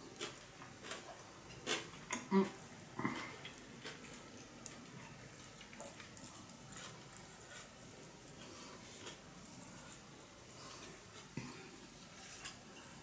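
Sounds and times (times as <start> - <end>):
chewing close to microphone: 0.2 - 10.1.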